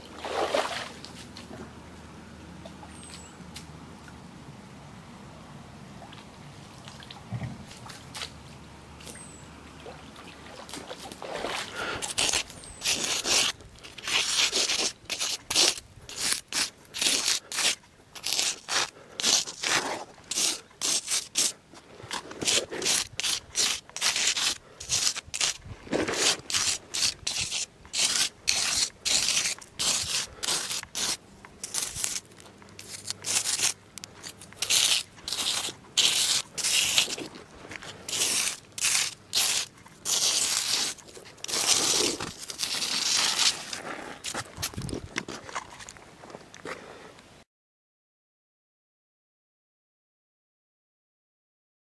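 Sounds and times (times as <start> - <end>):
scraping on rough stone: 11.2 - 46.0.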